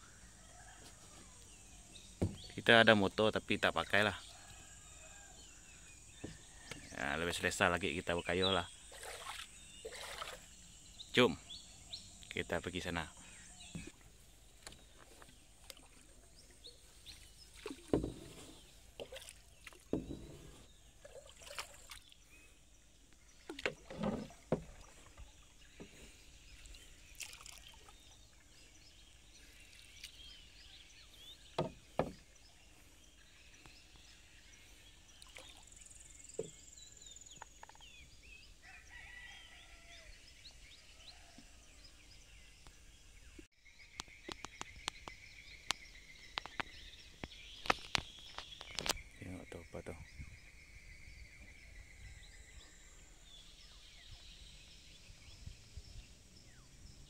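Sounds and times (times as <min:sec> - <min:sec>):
birds chirping: 0:00.0 - 0:57.0
insects chirping: 0:01.6 - 0:38.2, 0:43.6 - 0:57.0
wooden paddle strokes splashing: 0:08.9 - 0:10.6, 0:13.7 - 0:22.1, 0:23.3 - 0:28.0.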